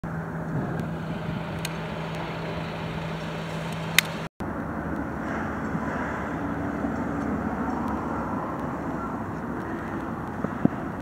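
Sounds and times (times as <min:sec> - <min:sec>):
engine drone: 0:00.0 - 0:11.0
street noise: 0:00.0 - 0:11.0.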